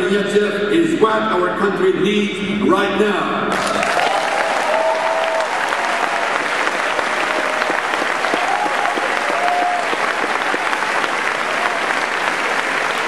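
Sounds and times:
crowd applauding: 0:03.5 - 0:13.0
voices cheering: 0:03.8 - 0:13.0.

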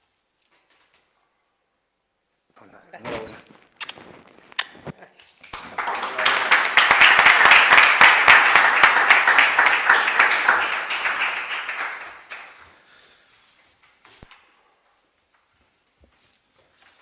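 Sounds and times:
people clapping: 0:05.2 - 0:13.1.

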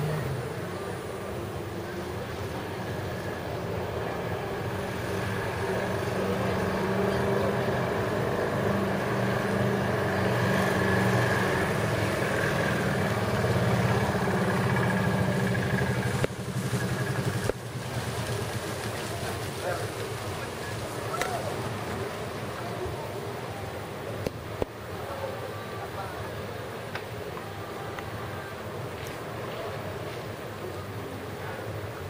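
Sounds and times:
motor engine running: 0:04.4 - 0:22.7.

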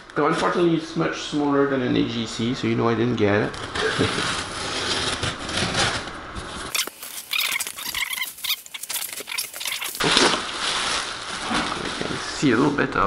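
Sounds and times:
bubble wrap rustling and crackling: 0:03.5 - 0:12.8
box cutter slicing packing tape: 0:06.7 - 0:10.0.

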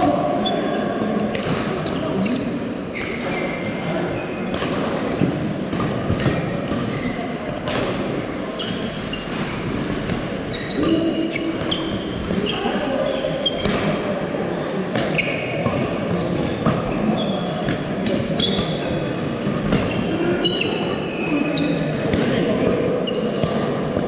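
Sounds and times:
hubbub of voices: 0:00.0 - 0:24.0
shoes squeaking on court floor: 0:01.8 - 0:04.4, 0:06.2 - 0:07.4, 0:10.5 - 0:13.7, 0:15.0 - 0:17.7, 0:18.3 - 0:19.0, 0:19.7 - 0:21.9, 0:22.7 - 0:24.0.

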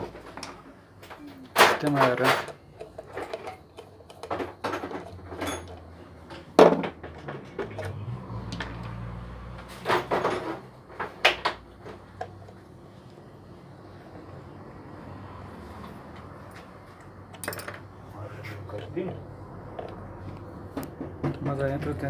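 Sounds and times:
knocks and clicks of handling: 0:00.0 - 0:09.0, 0:18.8 - 0:21.8.

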